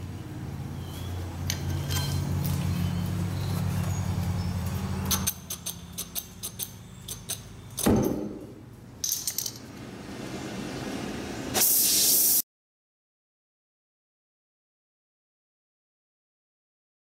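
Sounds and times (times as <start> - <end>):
torch flame hissing: 11.1 - 12.4.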